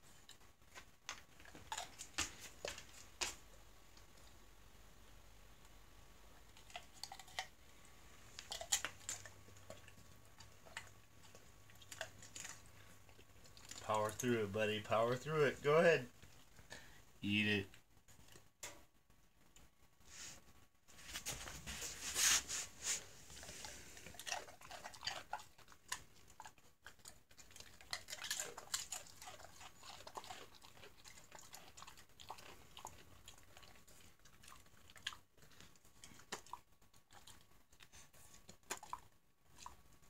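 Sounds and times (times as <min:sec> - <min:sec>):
dog crunching a chip: 0:00.2 - 0:03.4, 0:06.5 - 0:07.6, 0:08.3 - 0:15.2, 0:23.4 - 0:39.8
dog slurping and smacking: 0:23.3 - 0:40.0.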